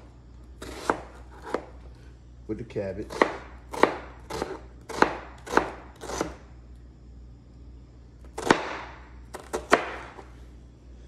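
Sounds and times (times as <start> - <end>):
knife slicing onion: 0.6 - 1.8, 3.0 - 6.5, 8.2 - 10.3.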